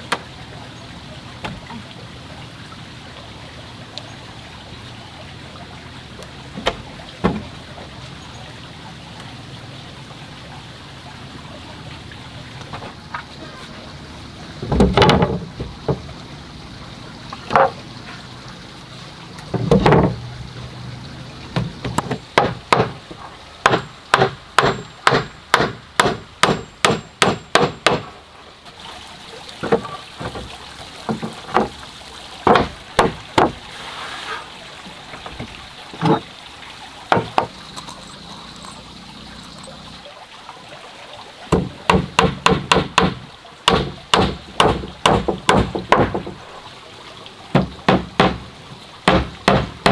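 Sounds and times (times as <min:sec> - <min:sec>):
heavy wooden thuds: 0:06.5 - 0:07.6, 0:14.6 - 0:16.1, 0:19.5 - 0:20.3, 0:32.4 - 0:33.6, 0:37.1 - 0:37.6, 0:41.5 - 0:46.4, 0:47.5 - 0:49.9.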